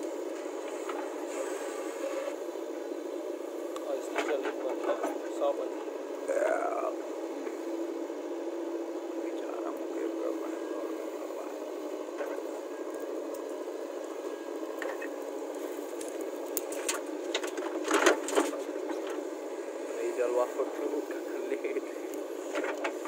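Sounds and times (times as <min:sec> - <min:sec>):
diesel engine running: 0:00.0 - 0:23.0.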